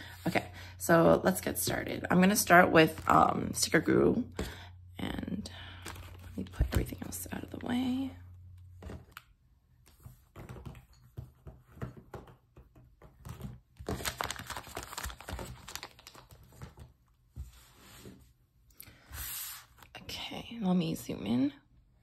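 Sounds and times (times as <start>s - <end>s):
plastic and paper crinkling: 13.2s - 17.0s.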